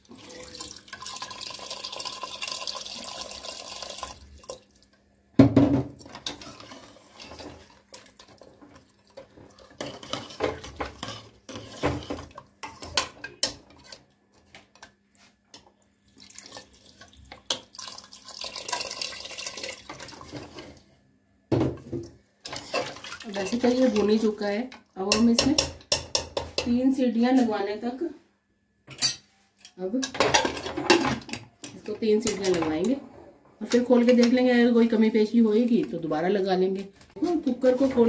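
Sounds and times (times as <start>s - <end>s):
water pouring into a pot: 0.0s - 4.9s, 16.0s - 20.8s
metal ladle scraping a pot: 6.1s - 7.8s, 9.6s - 14.0s, 22.4s - 24.3s.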